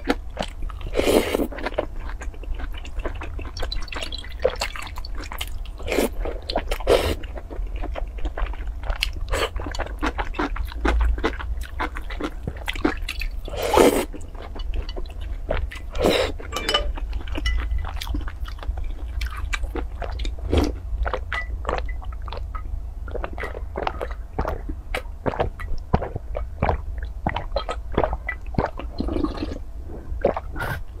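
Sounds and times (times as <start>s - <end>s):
wet gulping and swallowing: 20.0s - 31.0s.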